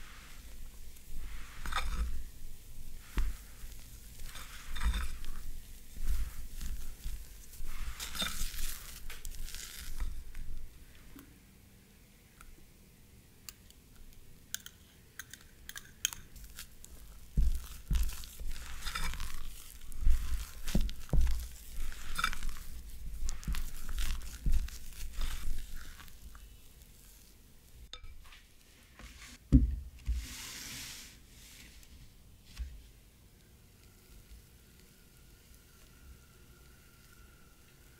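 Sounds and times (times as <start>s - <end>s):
spatula squelching in batter: 0.0s - 10.7s, 16.3s - 27.9s.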